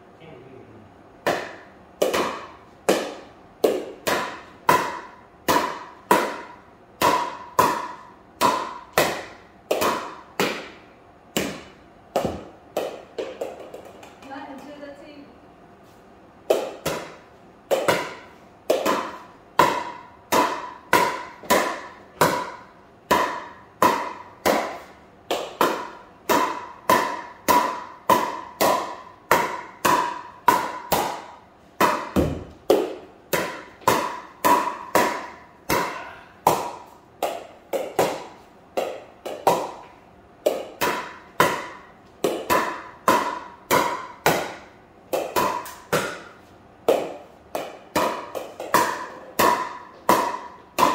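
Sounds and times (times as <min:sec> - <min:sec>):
paddle hitting plastic ball: 0:01.2 - 0:14.3, 0:16.4 - 0:50.9.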